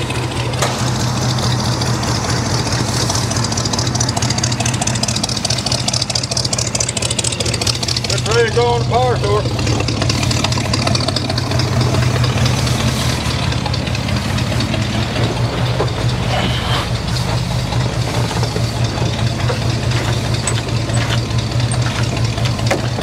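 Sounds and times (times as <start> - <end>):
pickup truck engine idling: 0.0 - 23.0.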